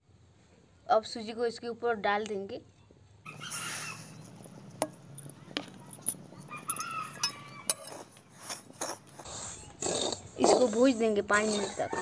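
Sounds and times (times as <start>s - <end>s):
sharp clicks and clinks: 4.2s - 8.2s.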